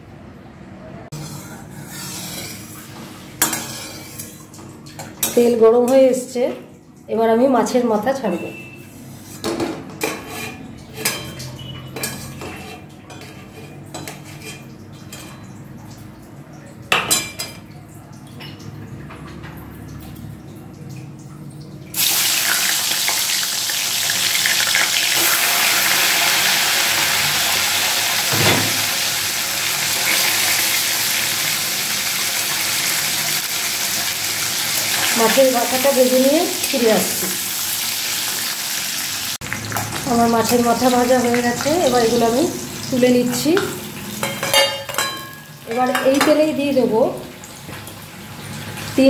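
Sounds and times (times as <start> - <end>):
fish frying in hot oil: 21.9 - 49.0
metal spatula clinking on pan: 44.2 - 46.4.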